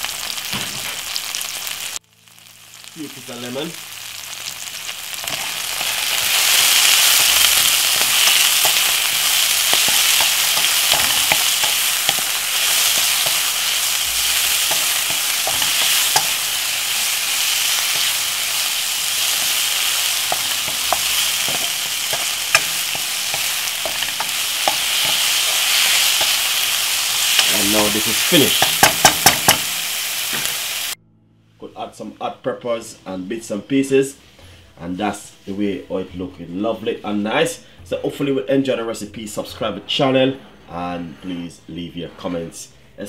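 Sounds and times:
vegetables sizzling in a frying pan: 0.0s - 31.0s
wooden spoon stirring in a pan: 6.8s - 29.7s.

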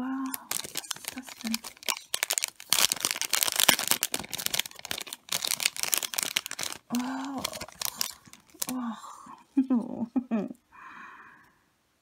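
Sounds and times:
packaging crinkling: 0.2s - 8.8s
person humming: 6.9s - 7.9s.

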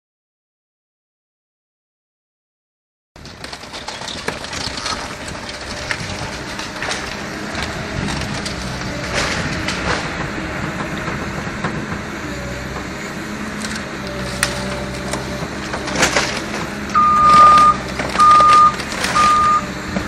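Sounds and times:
timber cracking and splintering: 3.2s - 10.2s, 13.6s - 19.6s
debris crashing down: 3.2s - 11.7s, 13.6s - 20.0s
excavator diesel engine running: 3.2s - 20.0s.

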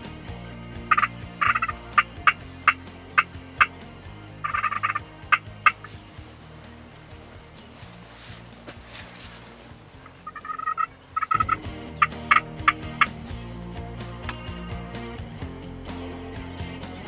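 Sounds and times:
turkey call notes: 0.7s - 13.5s
turkey gobbling: 0.9s - 3.8s, 4.4s - 6.2s, 9.9s - 13.2s.

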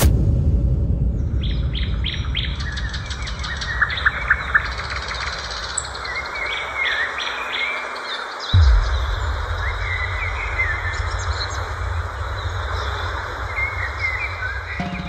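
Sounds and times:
low rumble: 0.0s - 4.5s, 8.6s - 15.0s
birds chirping: 1.2s - 15.0s.

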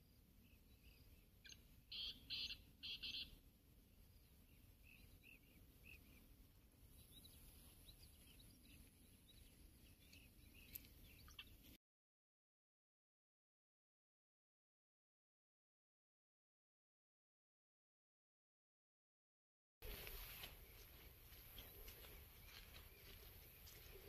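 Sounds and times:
faint bird chirps: 0.0s - 11.7s, 19.8s - 24.0s
bird calling high notes: 1.9s - 3.3s.

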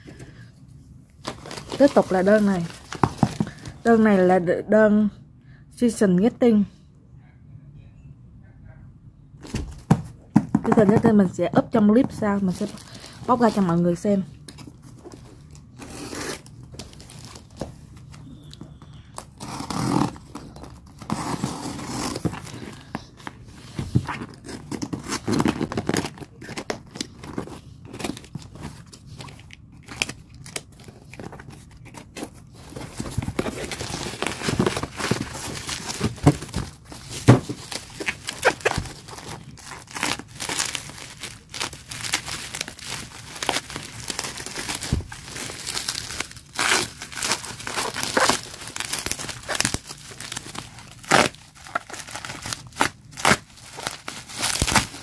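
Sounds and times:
bubble wrap crinkling: 1.2s - 4.0s, 12.1s - 55.0s
cardboard box tearing: 30.5s - 45.7s.

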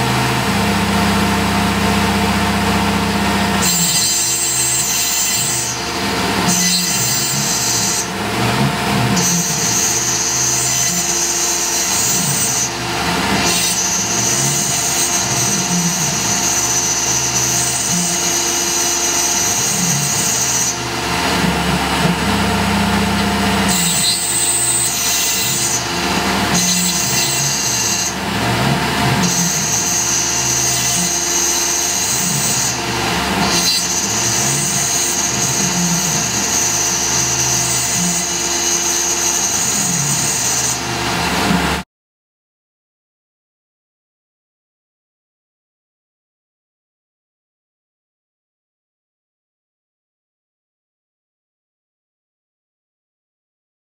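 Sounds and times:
mill cutting whine: 0.0s - 41.8s.

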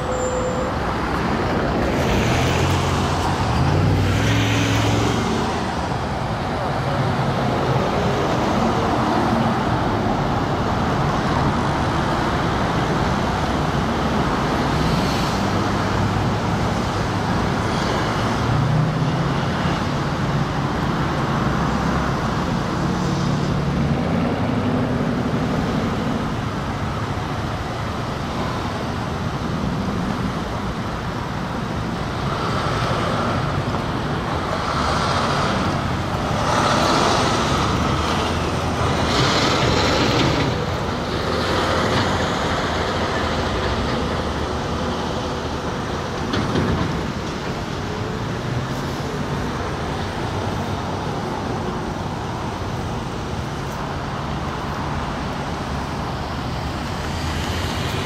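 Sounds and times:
vehicles idling and rolling: 0.0s - 58.0s
vehicles passing: 0.0s - 58.0s.

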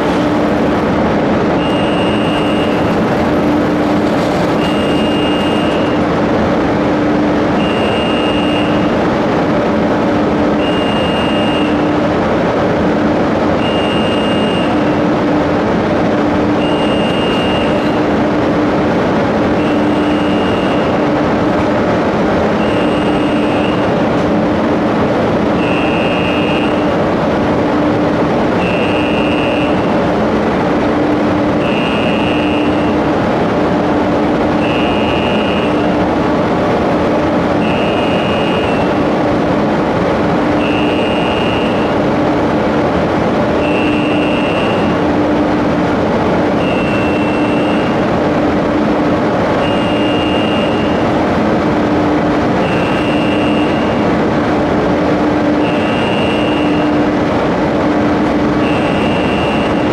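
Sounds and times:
mechanical drone of railcar mover: 0.0s - 59.9s
short high warning beep: 1.5s - 6.0s, 7.6s - 9.0s, 10.6s - 11.9s, 13.6s - 15.0s, 16.6s - 18.0s, 19.6s - 21.0s, 22.6s - 24.0s, 25.6s - 26.9s, 28.6s - 29.9s, 31.6s - 33.0s, 34.6s - 36.0s, 37.6s - 39.0s, 40.6s - 42.0s, 43.6s - 45.0s, 46.6s - 48.0s, 49.6s - 51.0s, 52.6s - 54.0s, 55.6s - 57.0s, 58.6s - 59.9s.

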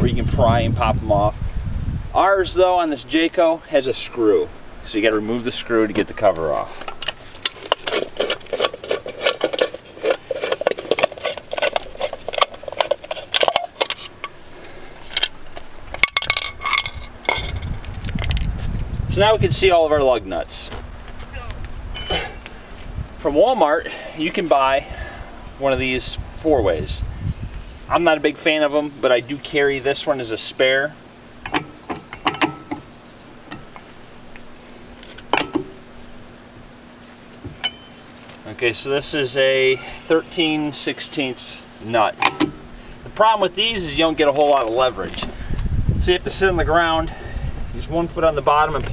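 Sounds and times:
hand tool clicking and scraping: 6.8s - 18.5s, 31.4s - 32.9s
metal clinks of lug wrench: 22.0s - 22.8s, 31.4s - 32.9s, 37.6s - 38.0s
metal cover handling clicks: 31.4s - 32.9s, 42.2s - 42.6s.

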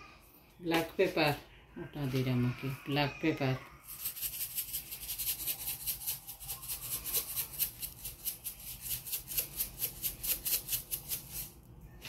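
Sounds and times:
pepper shaker rattling: 3.8s - 11.6s.

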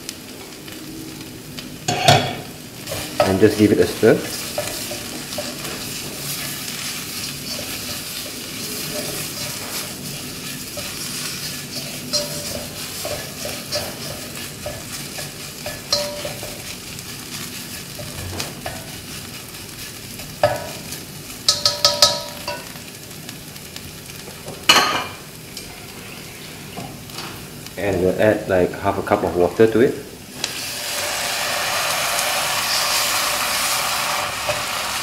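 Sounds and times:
food sizzling in a wok: 0.0s - 35.0s
spatula stirring and scraping: 2.9s - 22.6s.

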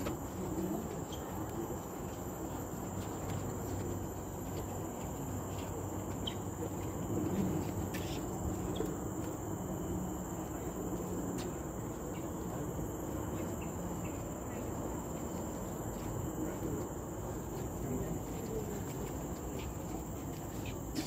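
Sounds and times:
insects trilling: 0.0s - 21.0s
low background noise: 0.0s - 21.0s.

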